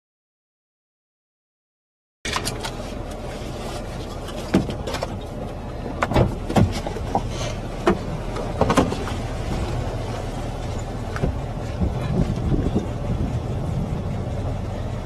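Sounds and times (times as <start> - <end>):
wind rumble on microphone: 2.5 - 15.0
gust thumps and knocks: 11.0 - 13.4.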